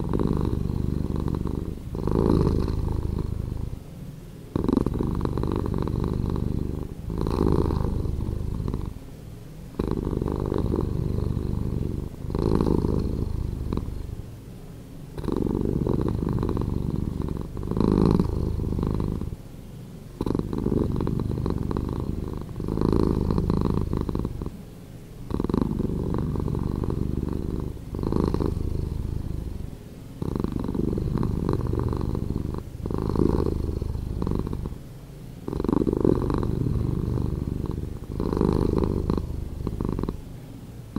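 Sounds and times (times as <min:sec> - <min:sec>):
cat purring: 0:00.0 - 0:14.4, 0:15.0 - 0:40.9.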